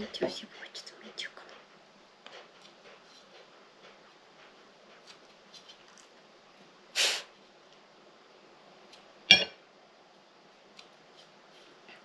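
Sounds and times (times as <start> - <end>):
knife clinking on dish: 9.3 - 9.6.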